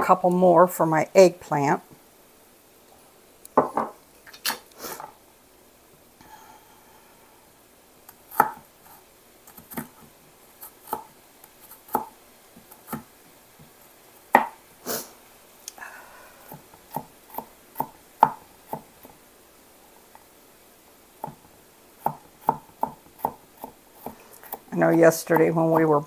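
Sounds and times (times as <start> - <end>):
knife chopping on plastic board: 8.3 - 8.6, 16.5 - 19.1, 22.0 - 25.9.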